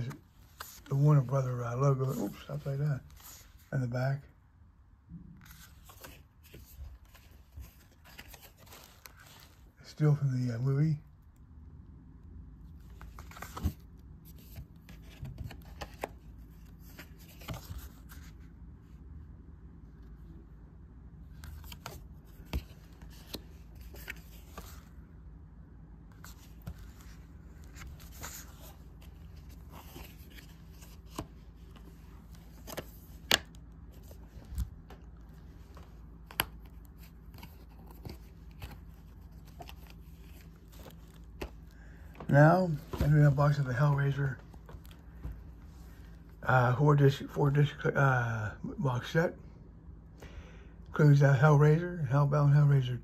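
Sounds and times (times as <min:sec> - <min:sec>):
paper rustling: 0:00.0 - 0:03.8, 0:05.4 - 0:09.8, 0:12.8 - 0:18.5, 0:21.3 - 0:25.0, 0:26.1 - 0:46.3
faint steady hum: 0:00.0 - 0:53.0.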